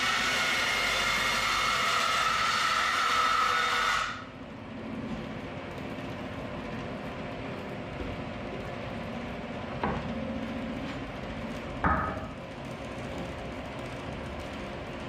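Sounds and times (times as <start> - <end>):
bandsaw running: 0.0 - 4.3.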